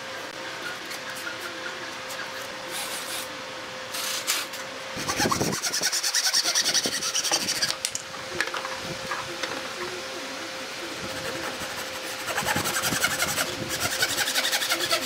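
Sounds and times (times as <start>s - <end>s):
handsaw cutting wood: 3.9s - 7.8s, 11.0s - 15.0s.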